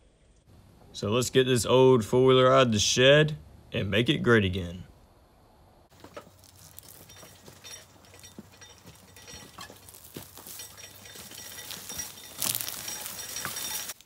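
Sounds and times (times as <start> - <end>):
light clinks and knocks: 5.9 - 14.0.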